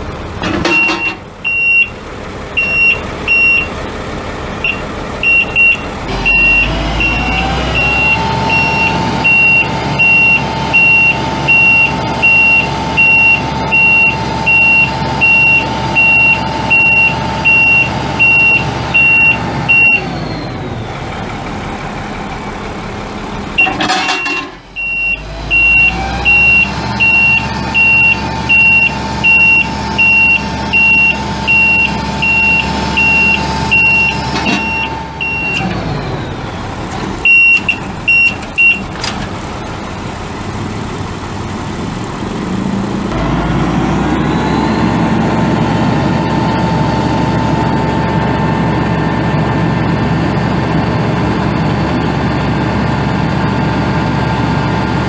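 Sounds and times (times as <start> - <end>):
diesel truck engine running: 0.0 - 55.0
high-pitched warning alarm beeping: 2.6 - 3.7, 4.6 - 20.2, 23.6 - 35.7.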